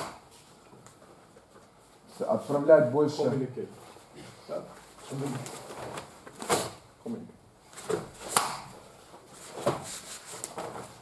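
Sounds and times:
karate uniform snapping: 7.8s - 8.8s.

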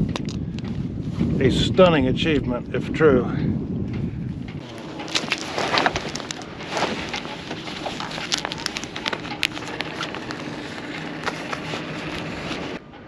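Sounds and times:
canvas rustling and crinkling: 4.6s - 12.8s.

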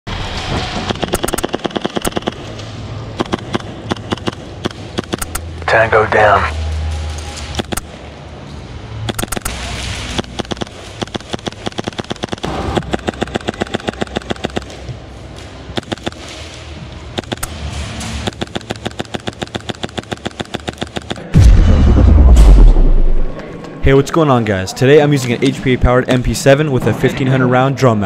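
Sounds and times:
airsoft gun firing bursts: 0.9s - 2.5s, 10.1s - 14.8s, 18.2s - 21.2s
loud deep boom: 21.2s - 23.4s.

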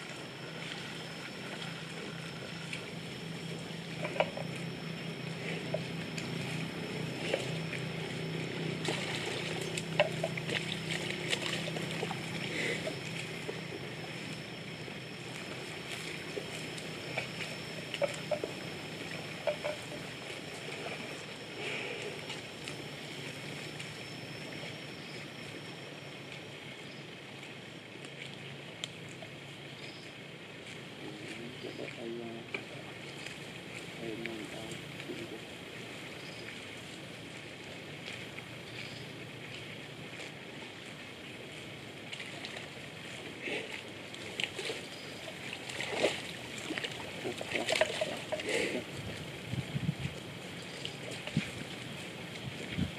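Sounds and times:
mud sloshing and squelching: 0.0s - 25.2s, 30.6s - 52.9s
low steady hum: 0.0s - 52.9s.

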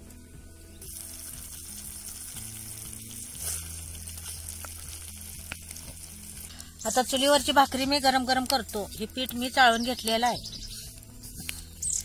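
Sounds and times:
gravy sizzling and bubbling: 0.8s - 12.0s.

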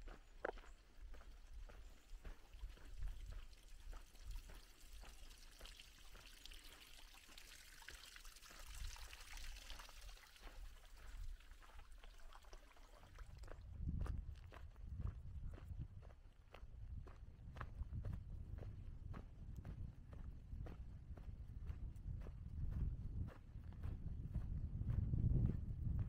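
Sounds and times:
footsteps on dirt trail: 0.0s - 6.8s, 13.3s - 26.0s
water pouring into tank: 2.4s - 13.6s.

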